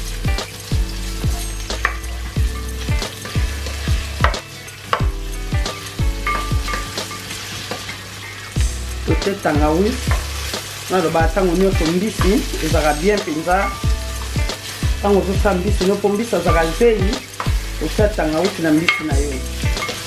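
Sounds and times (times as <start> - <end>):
onions sizzling in oil: 0.0 - 20.0
spoon rubbing and tapping pan: 1.2 - 8.0, 10.0 - 10.7.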